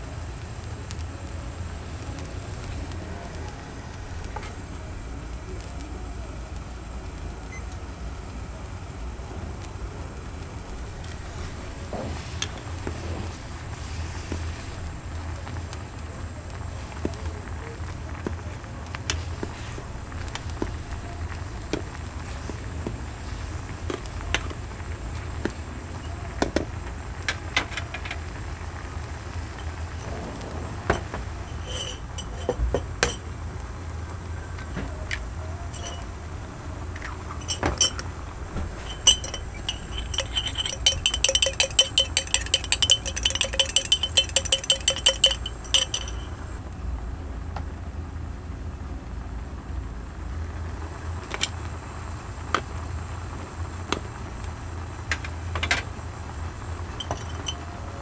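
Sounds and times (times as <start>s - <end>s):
steady low hum: 28.3s - 47.1s
metal utensils clinking on pot: 30.9s - 33.2s, 35.7s - 36.1s, 37.4s - 38.0s, 38.8s - 46.5s, 56.9s - 57.6s.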